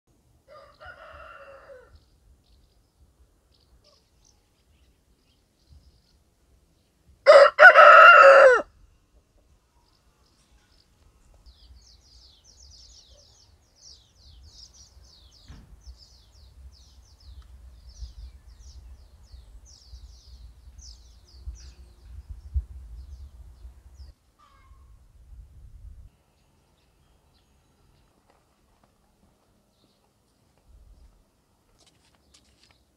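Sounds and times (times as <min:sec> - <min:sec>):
rooster crowing: 0:00.5 - 0:02.0, 0:07.2 - 0:08.7
small birds chirping: 0:01.9 - 0:07.0, 0:09.2 - 0:24.8.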